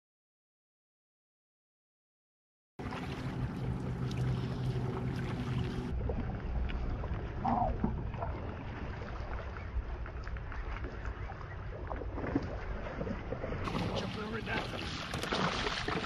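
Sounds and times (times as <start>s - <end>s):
low steady hum: 2.8s - 15.6s.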